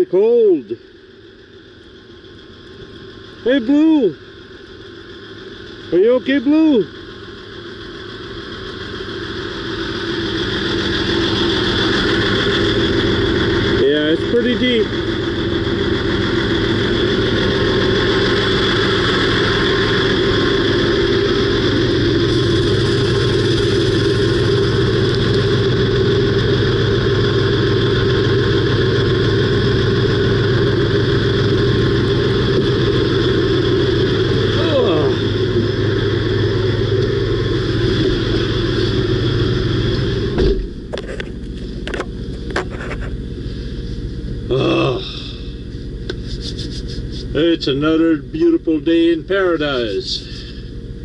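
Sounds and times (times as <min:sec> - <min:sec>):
diesel truck engine idling: 0:00.0 - 0:51.0
cab door shutting: 0:40.4 - 0:40.8.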